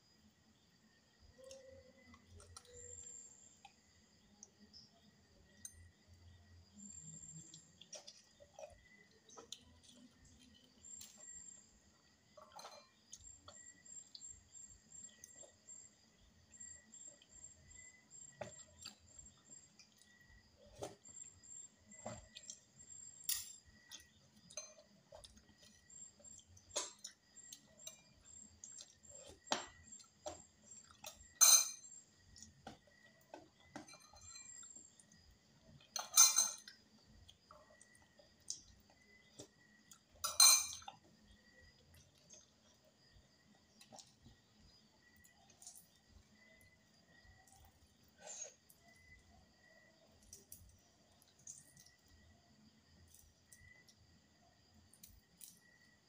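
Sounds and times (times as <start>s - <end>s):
soft chewing and mouth clicks: 1.3s - 22.9s, 23.6s - 31.4s, 32.1s - 36.0s, 36.6s - 40.2s, 40.8s - 52.3s
tableware clinks: 31.4s - 31.9s, 35.9s - 36.7s, 40.2s - 40.9s.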